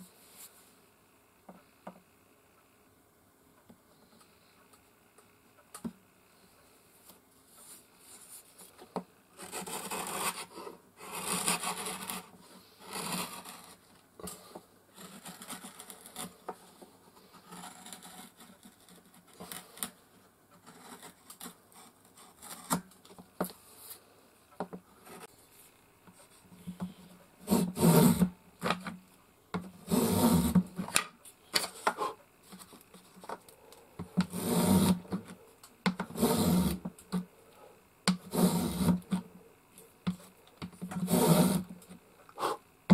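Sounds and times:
chisel scraping wood: 27.4 - 28.3, 29.8 - 30.6, 34.2 - 35.2, 36.0 - 36.9, 38.1 - 39.2, 40.9 - 41.7
hand plane cutting wood: 27.4 - 28.3, 29.8 - 30.6, 34.2 - 35.2, 36.0 - 36.8, 38.2 - 39.2, 41.0 - 41.7.

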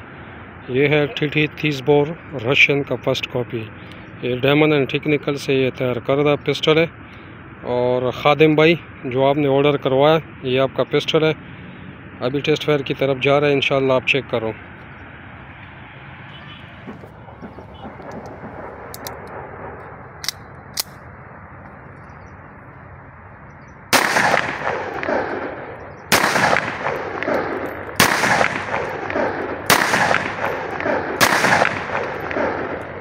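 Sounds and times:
pistol shots with ringing tail: 16.4 - 21.2, 23.9 - 33.0.

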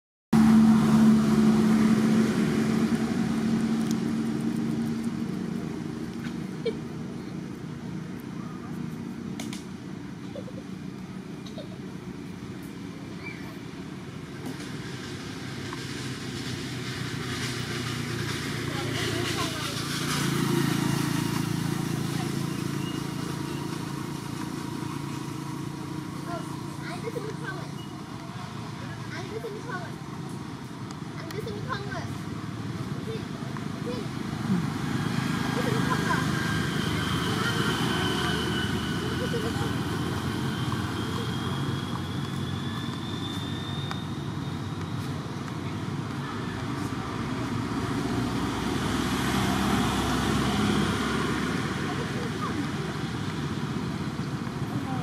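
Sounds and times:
low engine drone: 0.4 - 29.6, 33.8 - 44.0
motor engine running: 14.5 - 30.6.

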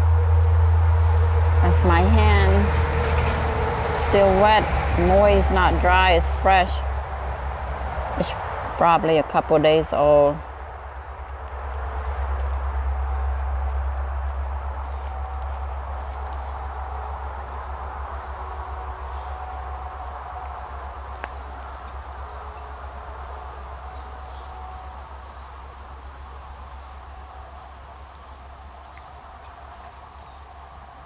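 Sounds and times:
insects chirping: 6.8 - 31.0.

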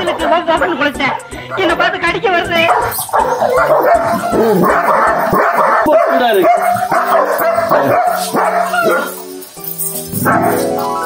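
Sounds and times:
dog barking loudly: 0.0 - 0.8, 2.5 - 9.4, 10.1 - 11.0.

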